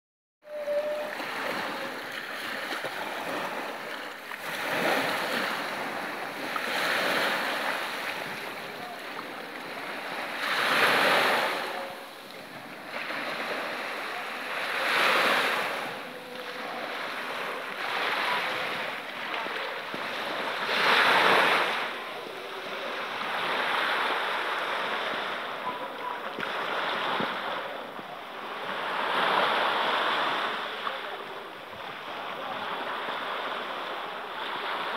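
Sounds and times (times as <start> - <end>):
small waves washing up beach: 0.5 - 34.9.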